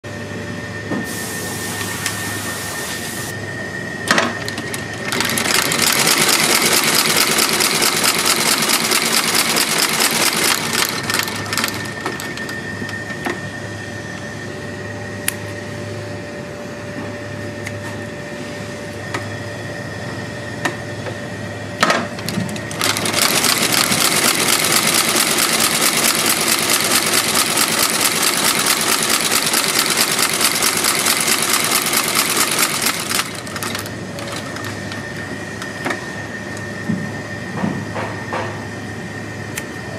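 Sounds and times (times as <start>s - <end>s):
machine motor running: 1.0s - 15.6s, 18.8s - 38.4s
stitching machine sewing: 4.4s - 13.0s, 22.2s - 35.7s.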